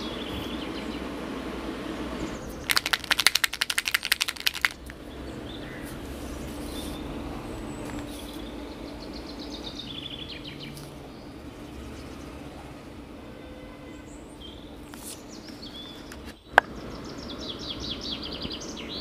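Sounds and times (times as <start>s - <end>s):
paint marker ball rattling: 2.6s - 5.0s.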